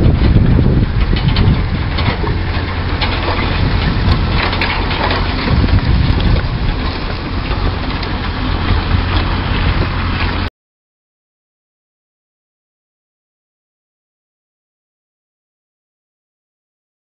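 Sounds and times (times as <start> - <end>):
low engine hum: 0.0 - 10.5
plough rattling over stubble: 0.0 - 10.5.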